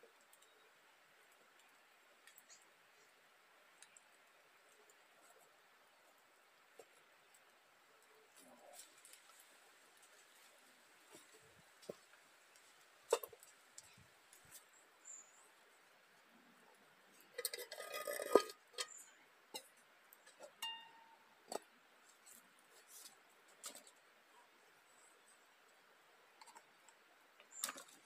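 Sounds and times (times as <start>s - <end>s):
clinking: 20.4s - 21.2s.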